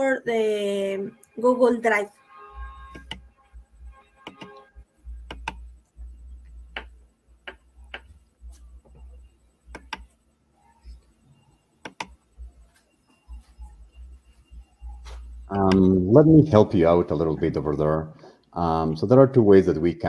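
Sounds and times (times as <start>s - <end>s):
mouse and keyboard clicks: 5.3s - 5.6s, 9.7s - 10.1s, 11.8s - 12.2s.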